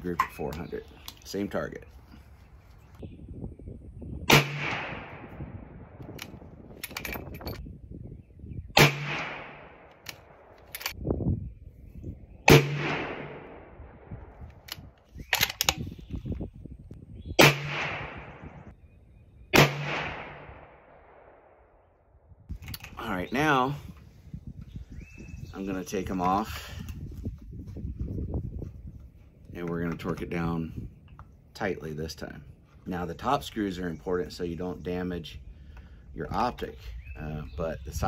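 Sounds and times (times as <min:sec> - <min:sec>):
rifle shots echoing: 0:04.3 - 0:05.5, 0:08.8 - 0:10.6, 0:12.5 - 0:14.2, 0:17.4 - 0:18.5, 0:19.5 - 0:21.8
rifle bolt metallic clicks: 0:06.0 - 0:07.6, 0:09.9 - 0:11.0, 0:14.5 - 0:15.9, 0:22.5 - 0:23.0.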